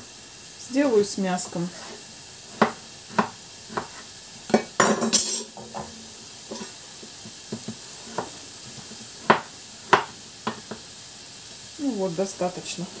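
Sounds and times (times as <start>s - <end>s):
pan sizzling faintly: 0.0s - 13.0s
knife scraping board: 1.7s - 4.1s
knife chopping on wooden board: 2.5s - 4.7s, 7.5s - 8.3s, 9.2s - 10.8s.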